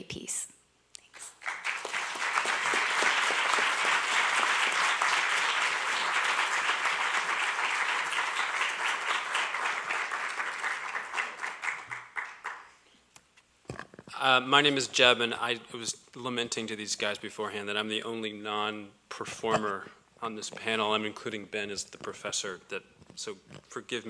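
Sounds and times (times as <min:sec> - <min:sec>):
audience applauding: 0:01.4 - 0:12.8.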